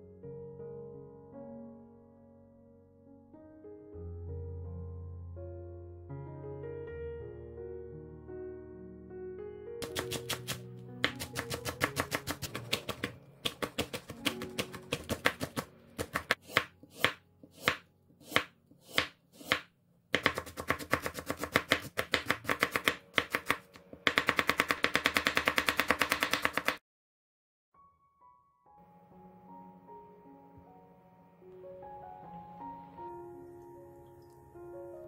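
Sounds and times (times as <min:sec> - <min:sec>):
knife chopping on wooden board: 0:09.8 - 0:26.8.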